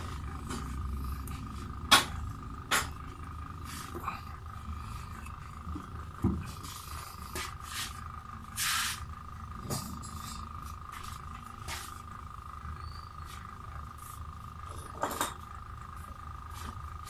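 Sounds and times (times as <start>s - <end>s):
steady high hum: 0.0s - 17.0s.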